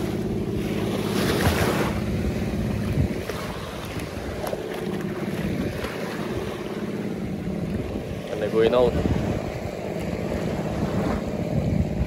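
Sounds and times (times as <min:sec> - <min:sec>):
small waves breaking on shore: 0:00.0 - 0:12.0
steady low hum: 0:00.0 - 0:12.0
wind buffeting microphone: 0:01.1 - 0:12.0.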